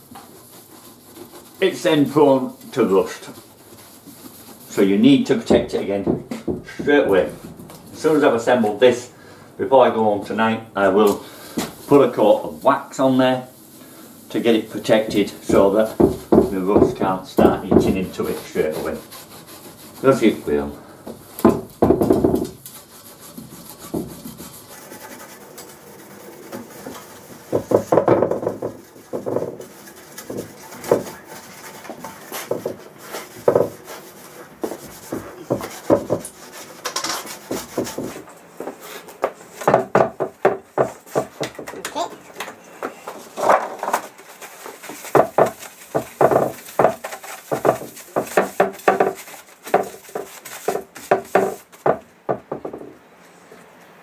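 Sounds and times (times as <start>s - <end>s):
cloth rubbing metal table: 13.4s - 39.1s.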